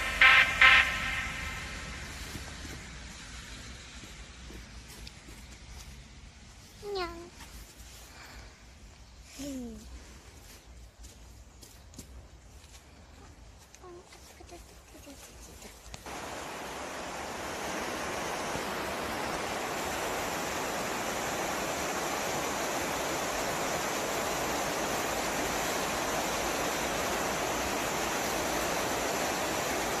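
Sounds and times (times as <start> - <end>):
steady rushing noise: 0.0 - 4.9, 16.0 - 30.0.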